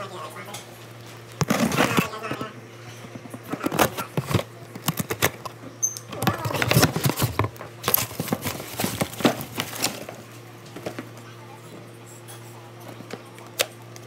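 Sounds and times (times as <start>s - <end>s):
packing peanuts and cardboard rustling: 1.0s - 2.4s, 3.5s - 10.3s.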